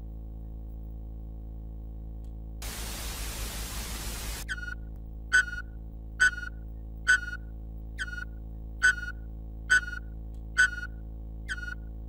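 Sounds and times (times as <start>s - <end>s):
low electronic hum: 0.0s - 12.0s
burst of static: 2.6s - 4.5s.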